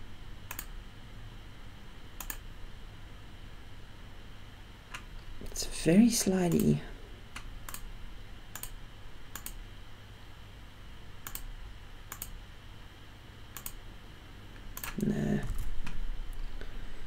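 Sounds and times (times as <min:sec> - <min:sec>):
computer mouse clicks: 0:00.5 - 0:00.8, 0:02.2 - 0:02.4, 0:07.3 - 0:07.9, 0:08.5 - 0:09.6, 0:11.2 - 0:11.5, 0:12.1 - 0:12.4, 0:13.5 - 0:13.8, 0:14.8 - 0:16.0
low hum of voice: 0:15.0 - 0:15.6.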